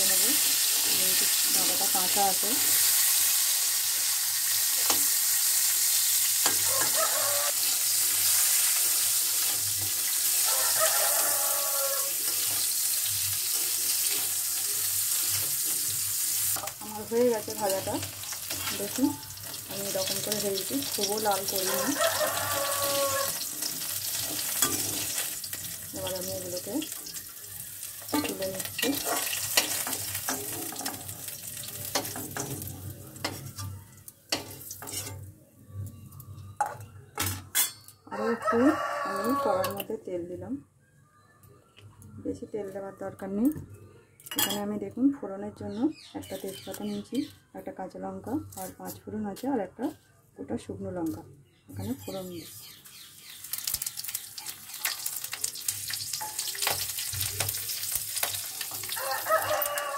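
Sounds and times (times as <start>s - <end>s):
hot oil sizzling: 0.0s - 35.3s, 51.8s - 59.9s
spatula stirring: 17.6s - 25.6s, 27.8s - 35.2s.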